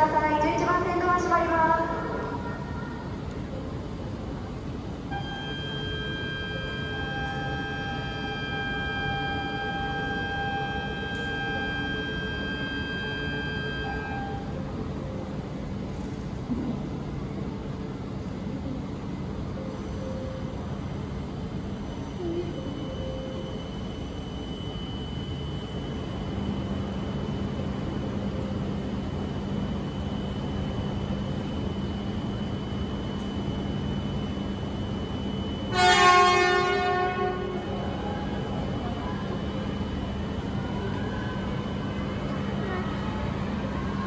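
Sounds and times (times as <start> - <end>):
faint high steady tone: 0.0 - 16.1, 18.2 - 44.0
train horn blast: 5.1 - 14.5, 35.7 - 37.7.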